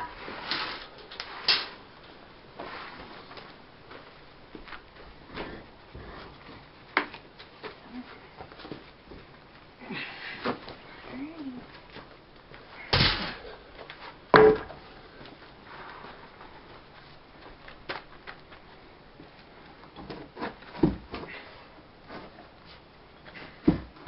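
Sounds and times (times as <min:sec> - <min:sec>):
wooden knocks: 0:14.4 - 0:14.8.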